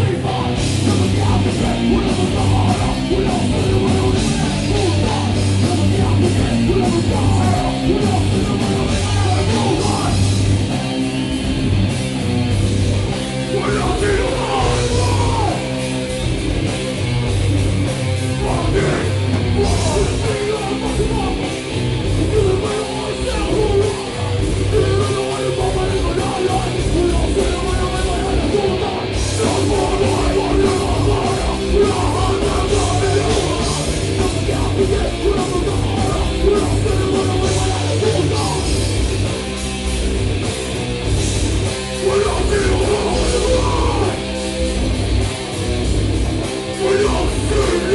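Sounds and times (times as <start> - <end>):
distorted guitar and bass: 0.0 - 47.9
shouted vocals: 13.6 - 15.7, 18.4 - 21.4, 42.0 - 44.2, 46.8 - 47.9.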